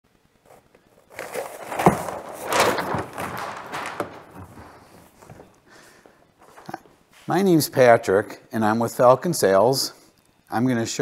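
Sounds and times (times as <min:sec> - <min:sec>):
sail cloth rustling: 0:00.5 - 0:07.3.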